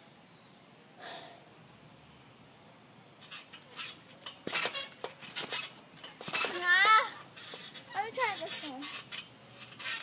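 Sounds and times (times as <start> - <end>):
trampoline thumping and squeaking: 3.2 - 10.0.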